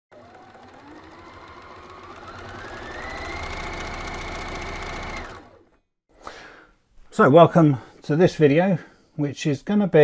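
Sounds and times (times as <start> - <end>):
sewing machine motor whine: 0.1 - 5.8.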